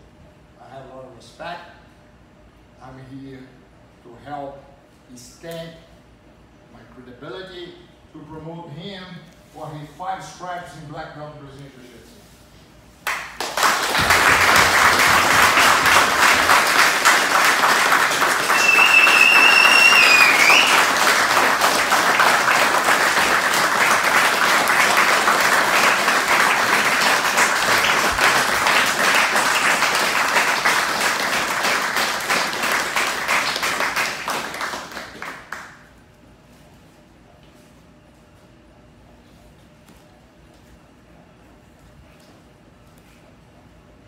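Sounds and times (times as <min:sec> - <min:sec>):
group clapping: 0:13.0 - 0:35.9.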